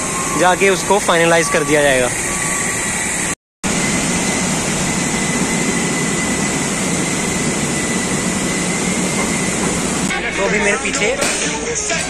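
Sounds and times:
conveyor machinery rumble: 0.0 - 11.8
thin high whine: 0.0 - 12.0.

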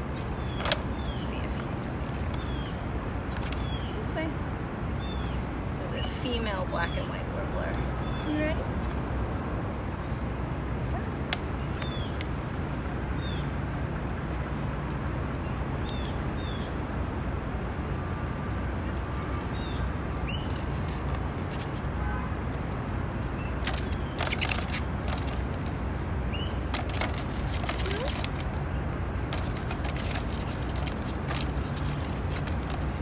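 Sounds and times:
city traffic rumble: 0.0 - 33.0
bird chips: 23.2 - 25.6, 26.2 - 33.0
paper bag crinkling: 26.7 - 28.5.

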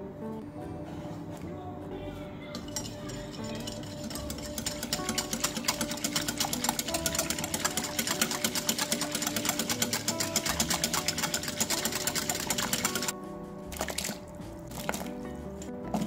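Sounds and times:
whisk clicking against glass bowl: 2.6 - 13.1.

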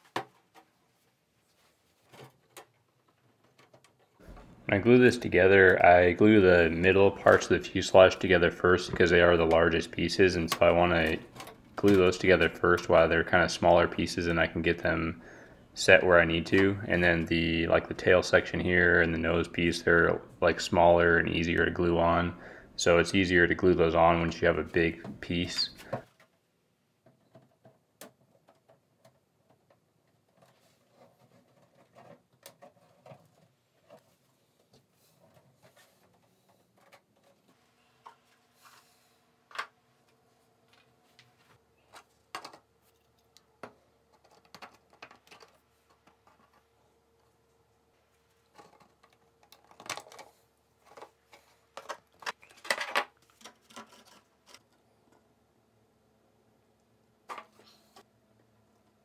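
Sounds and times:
plastic parts clicking and tapping: 2.1 - 4.5, 27.0 - 38.2, 41.9 - 47.4, 48.4 - 55.3.

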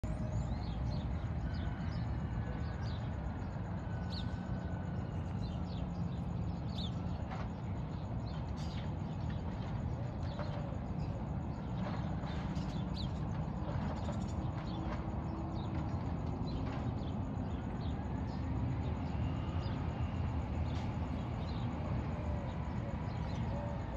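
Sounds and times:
low vehicle engine rumble: 0.0 - 23.9
birds chirping: 5.3 - 23.9.

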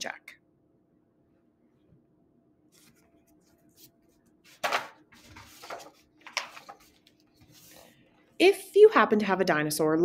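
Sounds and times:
paper rustling: 2.7 - 8.0.

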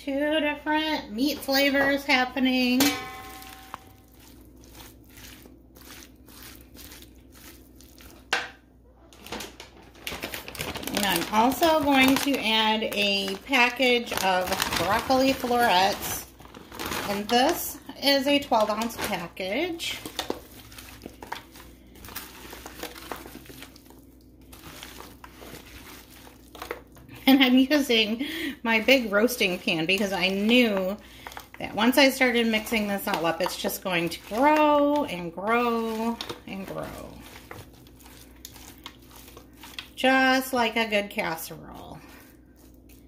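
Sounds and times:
spatula squishing thick mixture: 0.0 - 8.4, 10.2 - 43.0
spatula scraping pan: 32.0 - 40.3.

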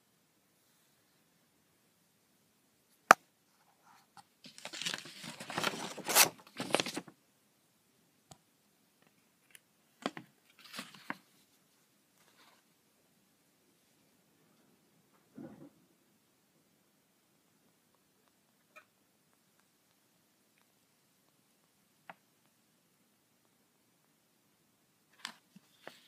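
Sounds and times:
paper packaging rustling: 3.9 - 7.2, 10.0 - 11.4.

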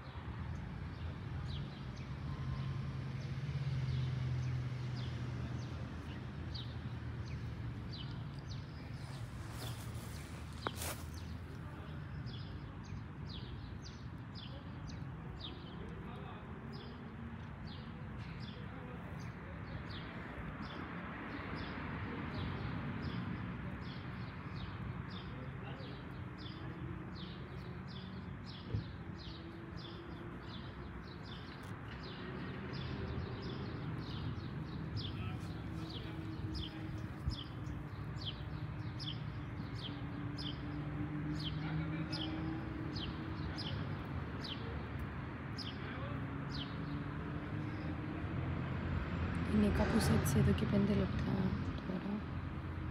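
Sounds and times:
songbird chirping: 4.0 - 16.0.

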